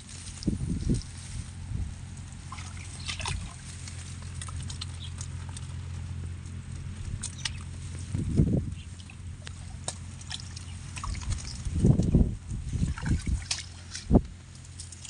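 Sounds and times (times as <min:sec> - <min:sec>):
low hum: 0:00.0 - 0:15.0
bamboo slats clicking and rattling: 0:13.0 - 0:15.0.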